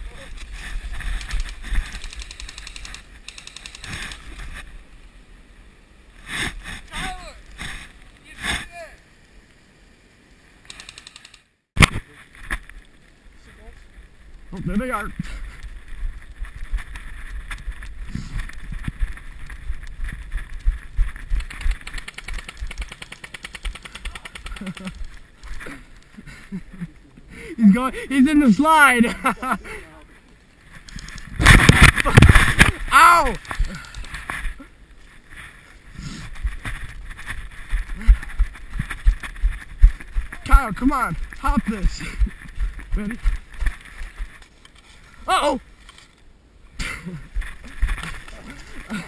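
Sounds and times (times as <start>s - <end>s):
knocks and rustles of movement: 0.0s - 5.0s, 10.7s - 27.3s, 30.0s - 49.0s
fast even rattle of clicks: 1.0s - 4.4s, 10.6s - 11.5s, 20.6s - 25.6s, 33.4s - 34.3s
airsoft gun automatic fire: 21.8s - 24.8s.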